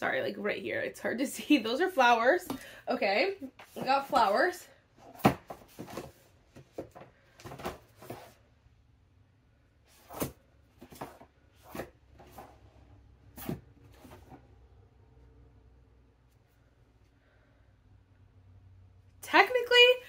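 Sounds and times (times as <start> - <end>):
books knocking and scraping plastic: 3.5 - 8.4, 9.9 - 14.6.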